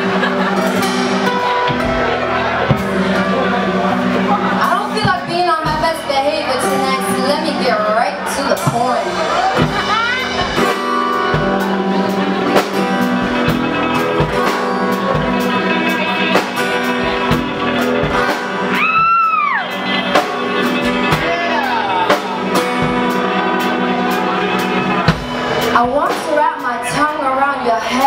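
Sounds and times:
live band playing: 0:00.0 - 0:28.0.

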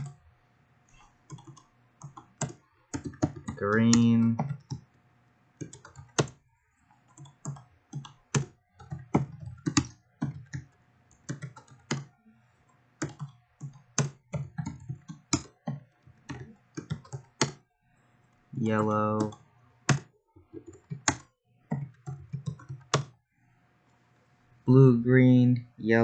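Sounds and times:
typing on a computer keyboard: 0:00.0 - 0:00.2, 0:01.2 - 0:04.9, 0:05.6 - 0:12.2, 0:13.0 - 0:17.6, 0:18.7 - 0:23.2.

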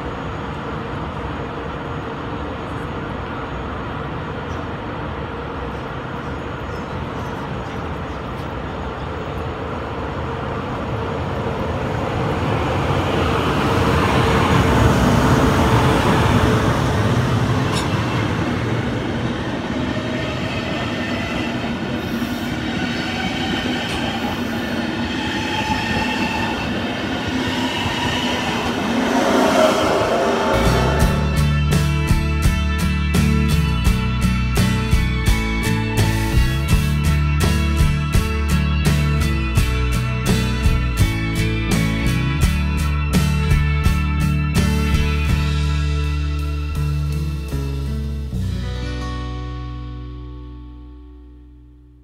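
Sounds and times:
train coaches rumbling past: 0:00.0 - 0:48.7
electric locomotive humming: 0:00.0 - 0:49.3.

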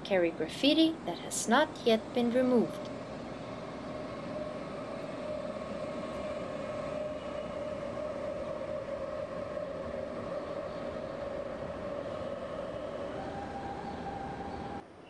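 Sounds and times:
constant tone: 0:00.0 - 0:15.0
train passing: 0:00.0 - 0:15.0.

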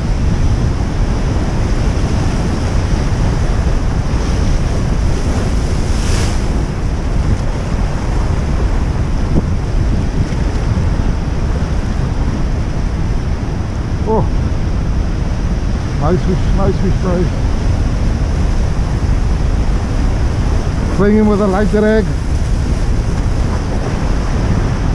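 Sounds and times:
surf breaking on rocks: 0:00.0 - 0:24.9
wind buffeting microphone: 0:00.0 - 0:24.9.

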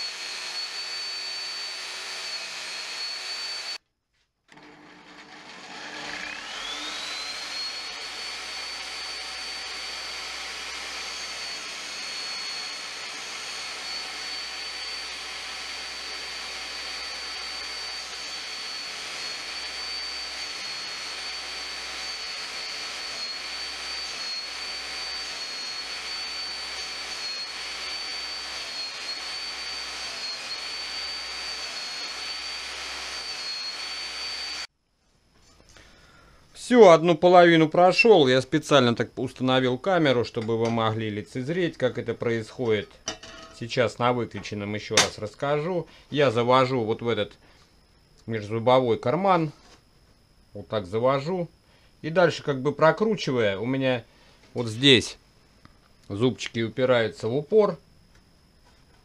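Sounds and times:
saw motor high whine: 0:00.0 - 0:03.8, 0:04.5 - 0:34.7
saw teeth grinding on diamond cup: 0:06.5 - 0:34.7.

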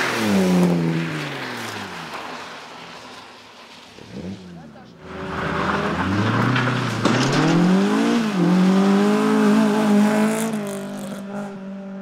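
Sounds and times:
rally car engine accelerating: 0:04.0 - 0:12.0.

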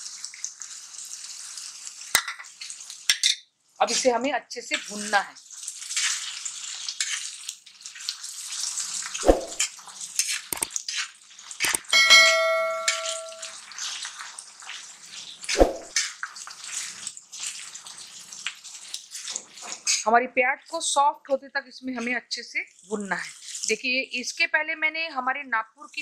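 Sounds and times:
onions sizzling in oil: 0:00.0 - 0:11.6, 0:13.7 - 0:20.1
spatula scraping and stirring: 0:04.8 - 0:11.6, 0:14.8 - 0:20.0
spatula clanging against pan: 0:11.8 - 0:13.5.

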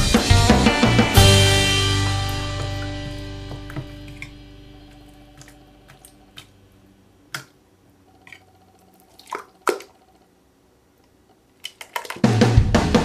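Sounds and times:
slime squelching: 0:03.5 - 0:06.6, 0:07.3 - 0:10.1, 0:11.4 - 0:12.3.

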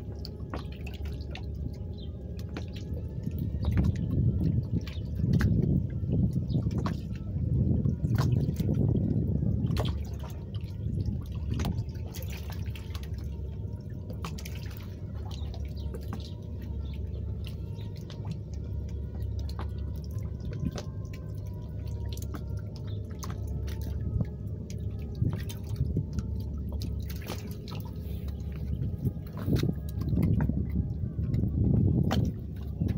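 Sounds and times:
low rumble: 0:00.0 - 0:32.9
small splashes and ticks: 0:00.0 - 0:32.9
water lapping against hull: 0:00.0 - 0:32.9.

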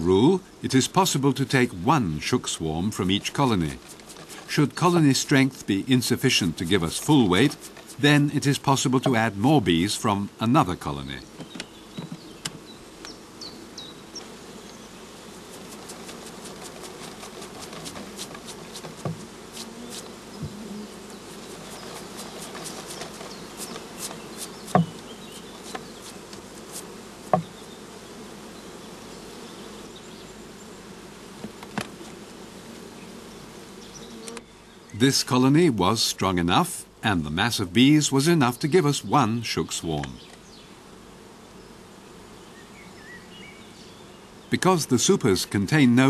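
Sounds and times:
honeybees buzzing: 0:00.0 - 0:46.0
louder knocks: 0:24.7 - 0:25.0.

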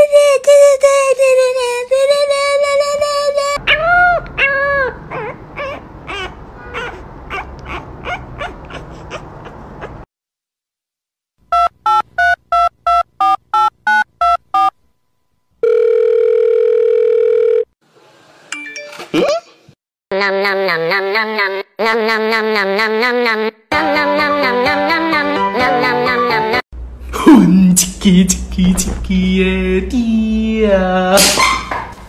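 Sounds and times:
puppy whining: 0:03.6 - 0:10.1
steady telephone tone: 0:15.6 - 0:17.7.

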